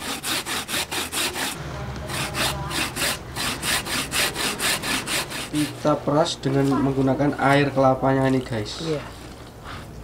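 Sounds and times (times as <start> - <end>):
coconut rasping on a grater: 0.0 - 5.7.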